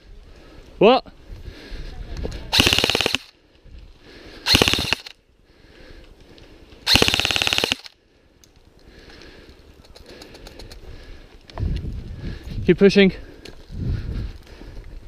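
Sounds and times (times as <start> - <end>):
airsoft rifle bursts: 2.5 - 3.3, 4.4 - 5.2, 6.8 - 8.0.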